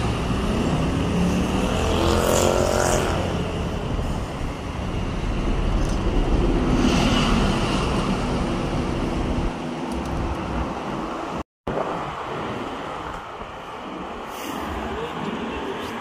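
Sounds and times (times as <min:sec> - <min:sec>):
hiss of passing vehicles: 0:12.0 - 0:16.0.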